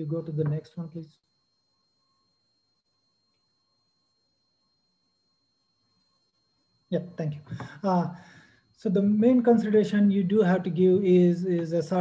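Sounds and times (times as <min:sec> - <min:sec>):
faint electronic hum: 0:00.0 - 0:12.0.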